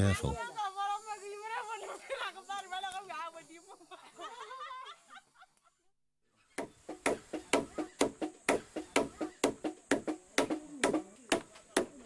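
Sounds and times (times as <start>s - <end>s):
palm bark stripping knocks: 7.0s - 12.0s.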